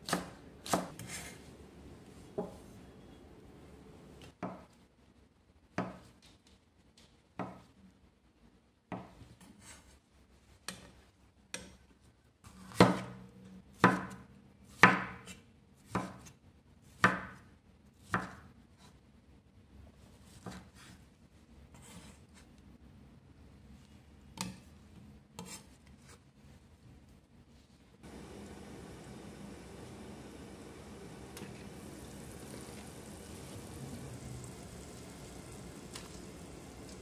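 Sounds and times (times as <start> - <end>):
knife chopping on wooden board: 0.0 - 1.2.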